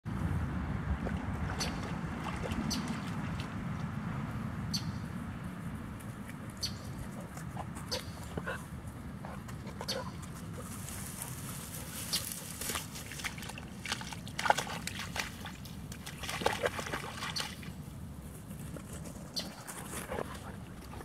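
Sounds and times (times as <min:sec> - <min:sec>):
wind rumbling on microphone: 0:00.1 - 0:13.0
dog splashing through water: 0:00.9 - 0:03.6, 0:09.9 - 0:17.8.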